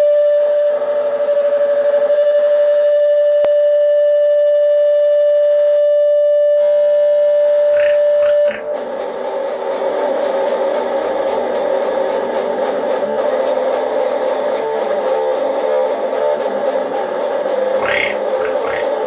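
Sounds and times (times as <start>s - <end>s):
distorted electric guitar: 7.7s - 9.0s, 17.8s - 19.0s.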